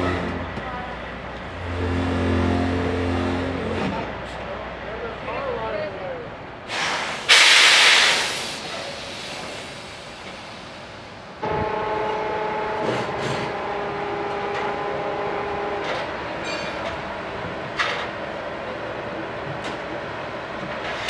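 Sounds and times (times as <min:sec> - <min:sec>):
air release hiss: 0:06.7 - 0:11.1.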